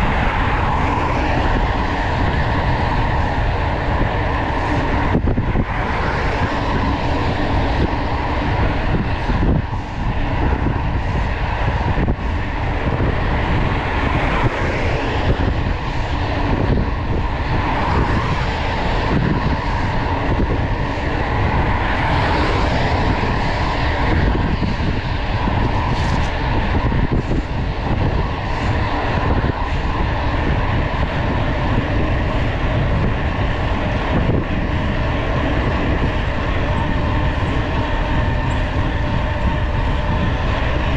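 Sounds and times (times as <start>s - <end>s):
bike tyres on asphalt: 0.0s - 40.9s
wind on microphone: 0.0s - 40.9s.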